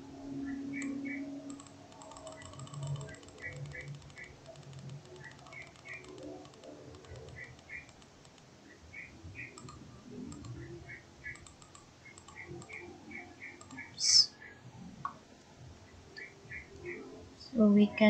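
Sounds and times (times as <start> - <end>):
bird chirping: 0.4 - 8.0, 8.6 - 14.6, 16.1 - 17.6
computer mouse clicks: 0.7 - 8.5, 9.4 - 14.2, 16.2 - 17.0.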